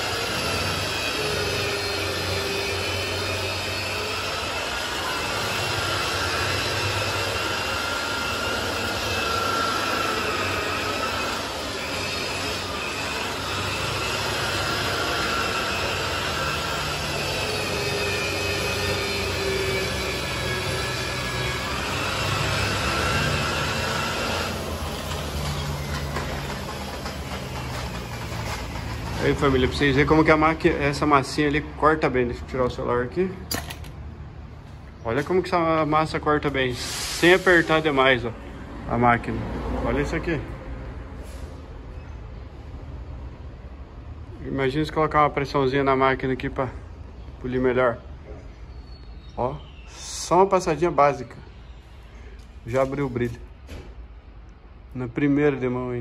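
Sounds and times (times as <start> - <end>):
electric car polisher whining: 0.0 - 30.4.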